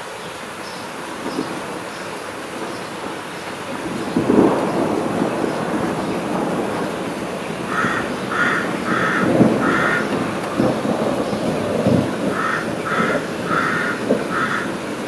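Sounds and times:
rain hiss: 0.0 - 15.0
thunder rumbling: 1.1 - 15.0
crow cawing: 7.6 - 10.9, 12.2 - 15.0.

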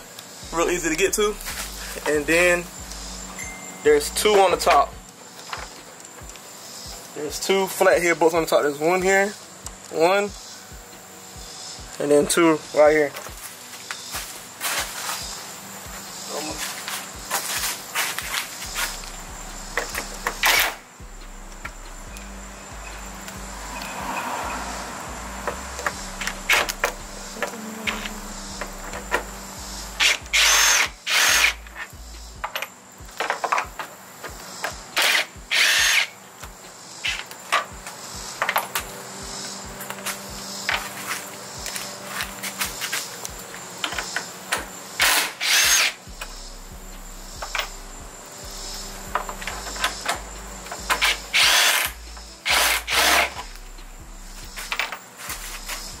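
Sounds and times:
cordless drill whining: 30.0 - 31.6, 35.0 - 36.1, 45.0 - 46.0, 51.0 - 53.3.

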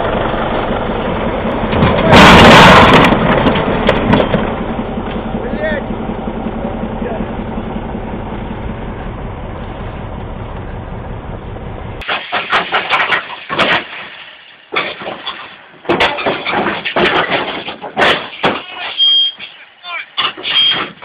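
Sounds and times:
heavy machine engine running: 0.0 - 13.7.

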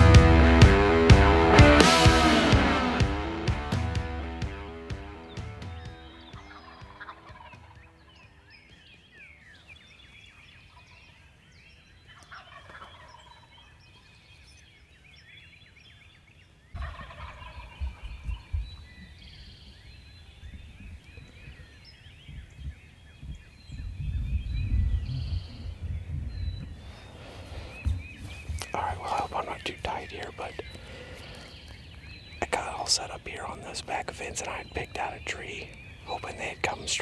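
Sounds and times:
small birds calling: 4.3 - 37.0
turkeys gobbling: 6.4 - 8.1, 12.1 - 14.0, 16.8 - 18.5
low rumbling on microphone: 20.4 - 29.1.

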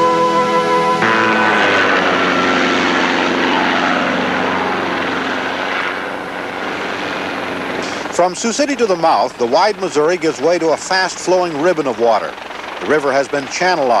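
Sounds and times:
held musical note: 0.0 - 7.9
propeller aircraft engine drone: 0.0 - 14.0.

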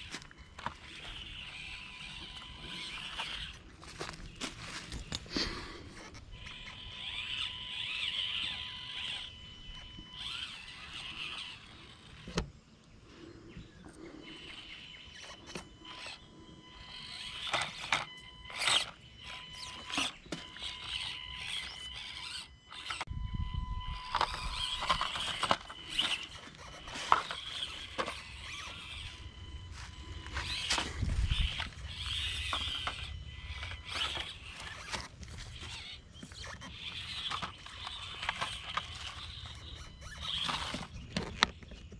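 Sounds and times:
small electric motor whining: 0.0 - 41.9.

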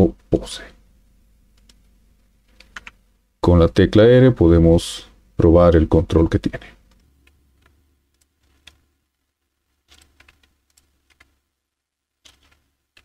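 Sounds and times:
faint room hum: 0.0 - 13.0
keyboard and mouse clicks: 1.5 - 3.0, 6.9 - 8.8, 9.8 - 11.4, 12.2 - 13.0.

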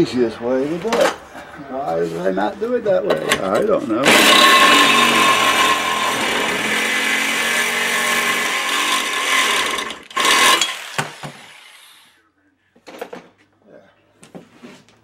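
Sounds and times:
reciprocating saw cutting metal: 4.0 - 12.1.

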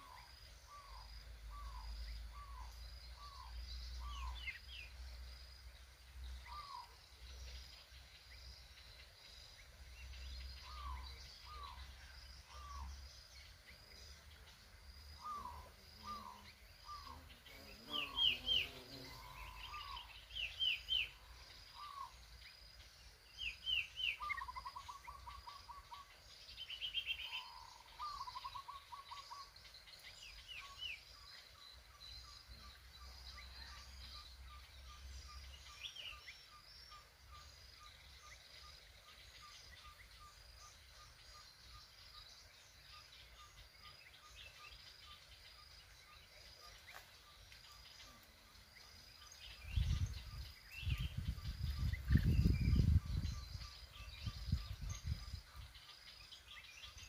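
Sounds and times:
bulbuls chirping: 23.4 - 33.7.

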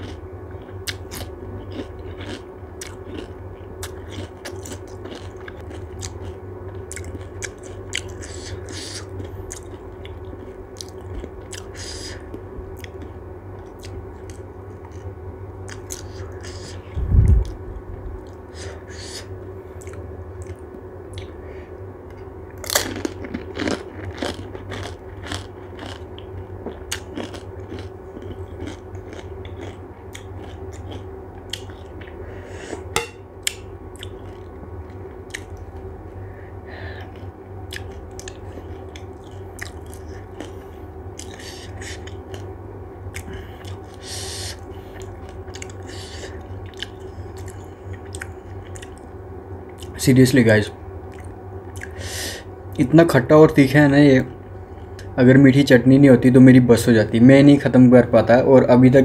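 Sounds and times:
wet chewing: 0.0 - 15.1, 18.2 - 21.3, 22.1 - 32.2, 32.8 - 35.7, 37.0 - 42.5, 43.1 - 49.1
person chewing crunchy food: 0.0 - 21.4, 22.1 - 50.0, 51.0 - 52.5.

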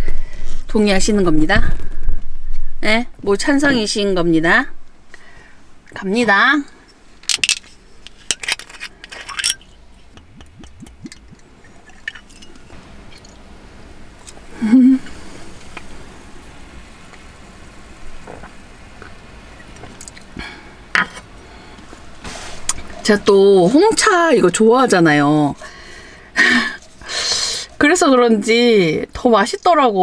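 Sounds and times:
glass bottle and metal cup clinking: 8.3 - 9.8, 11.0 - 13.4
woman humming: 10.2 - 11.4, 14.5 - 15.2.

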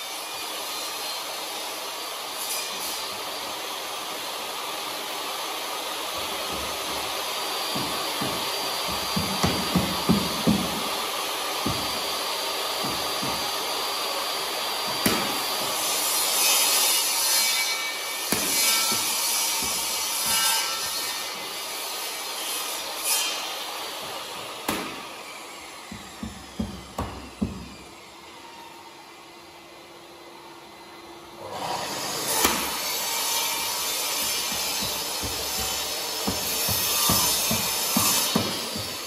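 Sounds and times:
power tool whirring: 3.1 - 28.6
sharp knocks: 7.7 - 11.0, 11.6 - 12.2, 34.2 - 39.0.

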